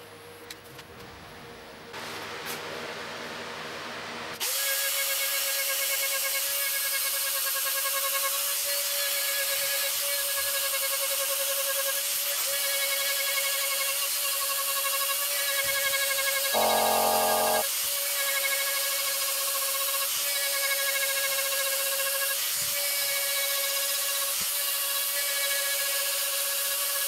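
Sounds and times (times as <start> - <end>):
rotary tool whining into wood: 16.6 - 17.6.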